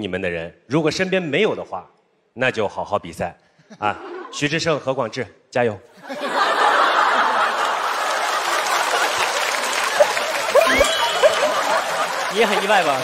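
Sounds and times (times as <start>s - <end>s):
audience laughing: 6.0s - 13.0s
audience applauding: 6.4s - 13.0s
voices calling out: 9.9s - 13.0s.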